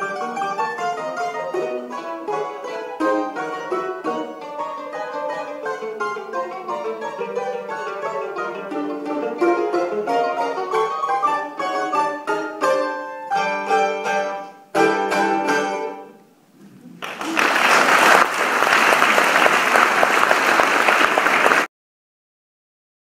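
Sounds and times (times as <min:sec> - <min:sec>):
mandolins plucking: 0:00.0 - 0:17.0
audience applause: 0:17.0 - 0:21.7.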